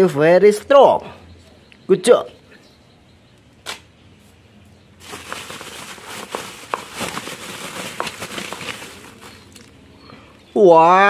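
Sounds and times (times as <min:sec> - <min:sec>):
bubble wrap crinkling: 0:05.0 - 0:09.8.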